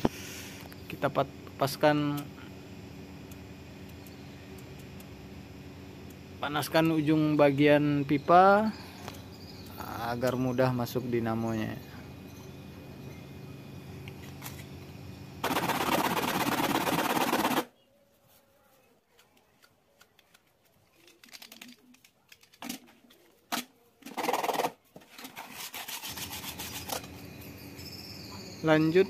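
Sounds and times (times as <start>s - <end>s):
plastic pipe scraping on sandpaper: 24.1s - 27.1s.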